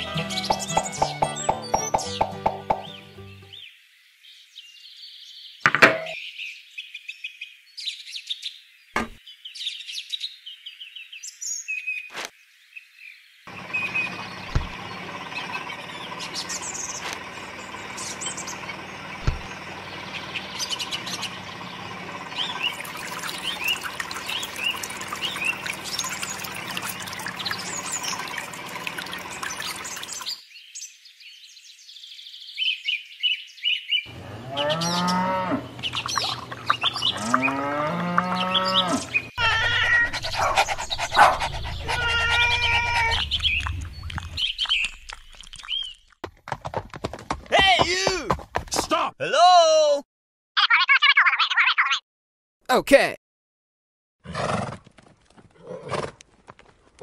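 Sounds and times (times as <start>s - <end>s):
birds chirping: 0.0s - 3.8s, 13.0s - 46.2s
juicer electric motor running: 17.1s - 30.3s, 34.1s - 39.3s.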